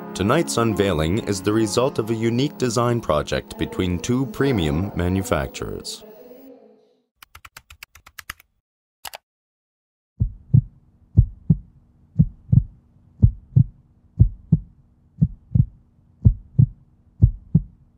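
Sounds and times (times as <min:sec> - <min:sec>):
heartbeat thumps: 0:10.2 - 0:17.8.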